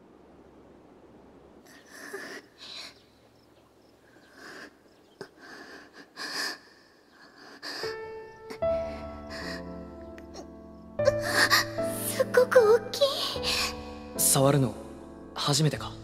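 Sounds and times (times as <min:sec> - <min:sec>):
girl panting heavily: 0:05.4 - 0:09.8
soft music: 0:07.3 - 0:16.0.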